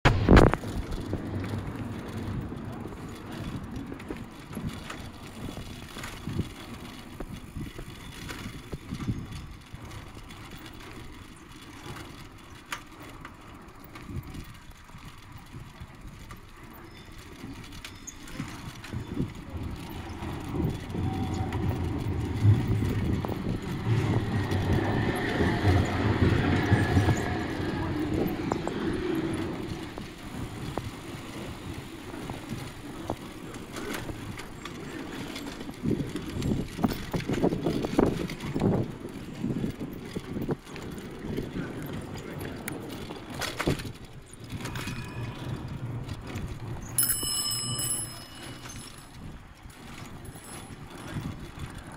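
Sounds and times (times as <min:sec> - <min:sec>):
tram passing: 0:00.1 - 0:07.4, 0:16.4 - 0:39.5, 0:41.2 - 0:51.9
wind on microphone: 0:00.1 - 0:12.0, 0:13.8 - 0:51.9
bicycle rattle: 0:00.1 - 0:51.9
bicycle tyres on brick paving: 0:00.1 - 0:51.9.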